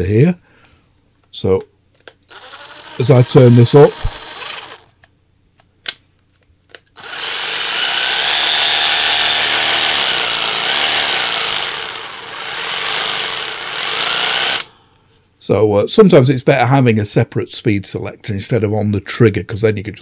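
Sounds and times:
cordless saw motor running: 2.3 - 4.9, 7.0 - 14.7.

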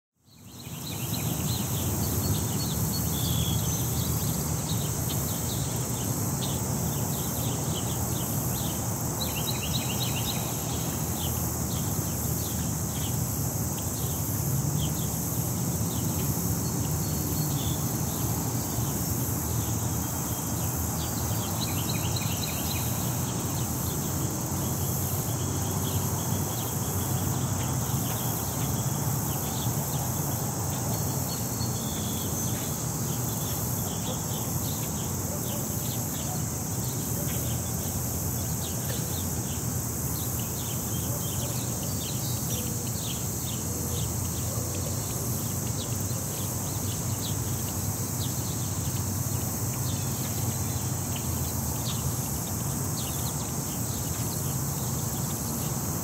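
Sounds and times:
insects droning: 0.2 - 56.0
small birds chirping: 0.3 - 56.0.

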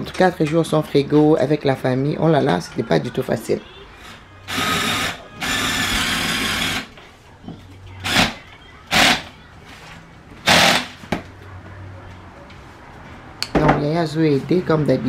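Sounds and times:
ice dispenser motor whirring: 4.0 - 6.9, 10.5 - 10.9.

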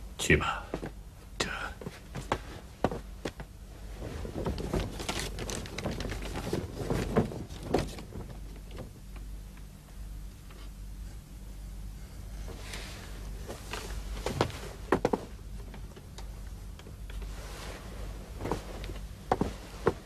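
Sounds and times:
cloth rustling: 3.8 - 8.4, 17.2 - 20.0.

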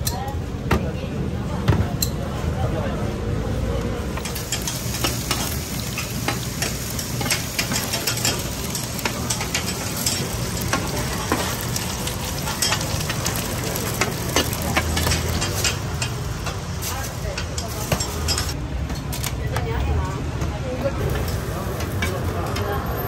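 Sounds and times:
dumplings sizzling in oil: 4.2 - 18.6.

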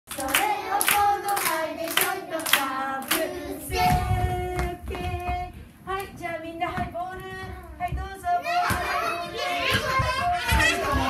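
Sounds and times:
hand claps on the beat: 0.1 - 5.2
woman and children singing: 0.1 - 11.0.

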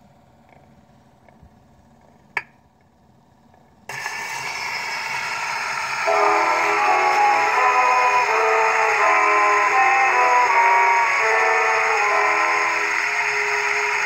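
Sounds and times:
record surface hiss: 0.0 - 4.0
orchestral music on gramophone: 5.8 - 14.0.

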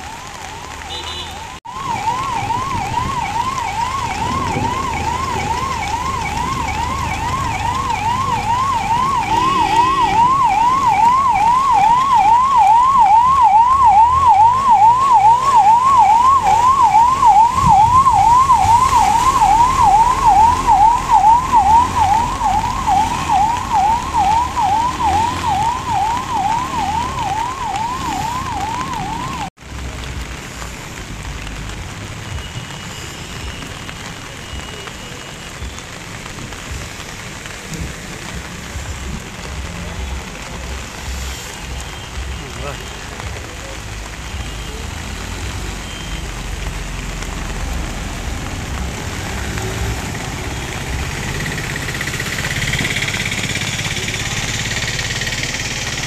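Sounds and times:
ambulance siren yelp: 0.0 - 29.6, 48.6 - 56.0.

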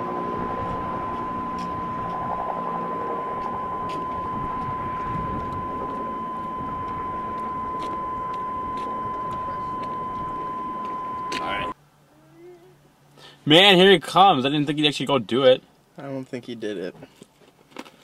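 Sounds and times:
high-pitched tone: 0.0 - 11.8.

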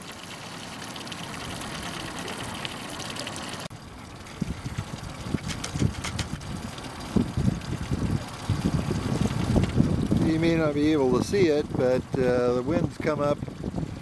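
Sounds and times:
water churning behind boat: 0.0 - 14.0
wind buffeting microphone: 3.9 - 14.0.

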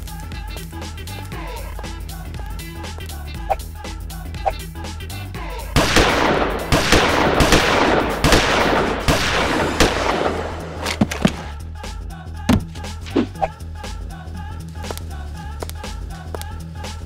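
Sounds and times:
background music with steady beat: 0.0 - 9.1, 10.0 - 17.0
machine-gun fire: 5.8 - 11.5.

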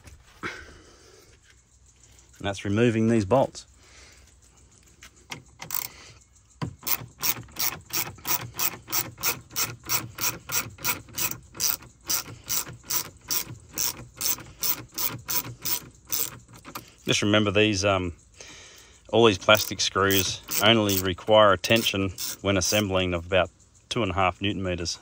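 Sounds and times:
ratchet driver clicking: 5.3 - 17.0, 19.3 - 23.0.

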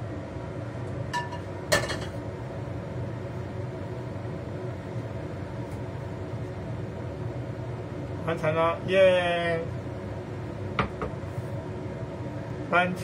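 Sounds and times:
steady low hum: 0.0 - 13.0
cookware clinking: 1.2 - 2.2.

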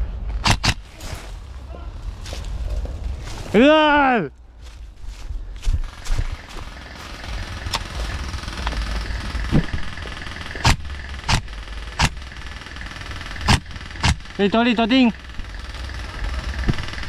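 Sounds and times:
low rumble: 0.0 - 3.6, 4.3 - 14.0
airsoft rifle shots: 0.4 - 0.9, 7.0 - 15.5
rustling through dry leaves: 0.8 - 3.8, 4.5 - 10.0.

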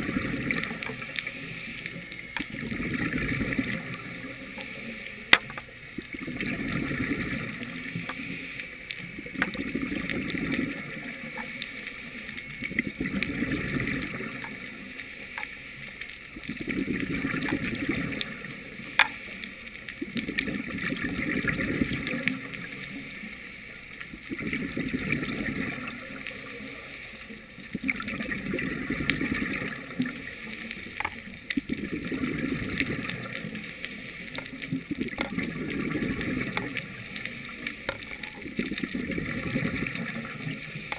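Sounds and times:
underwater exhaled bubbles: 0.0 - 40.9.

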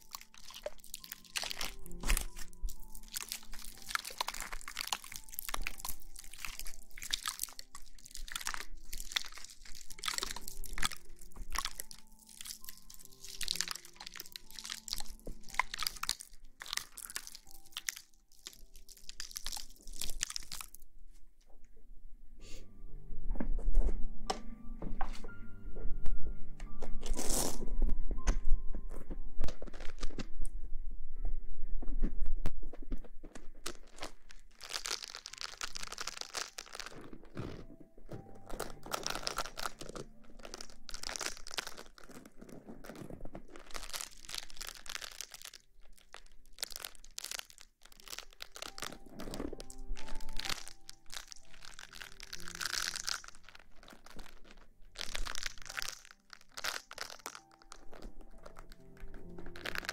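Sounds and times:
crinkling and crunching handling: 0.0 - 21.9, 26.8 - 30.8, 31.8 - 59.9
soft background music: 0.0 - 59.9.

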